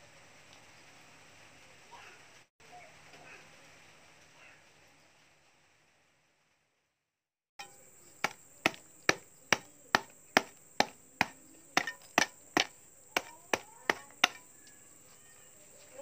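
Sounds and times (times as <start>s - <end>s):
sharp knocks on cement: 7.6s - 14.5s.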